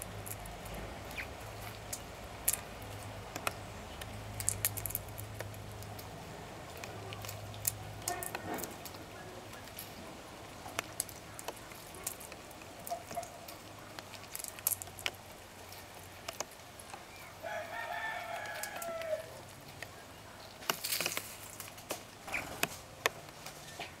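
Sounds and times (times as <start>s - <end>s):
seeds cracking: 0.0s - 24.0s
rooster crowing: 17.4s - 19.4s.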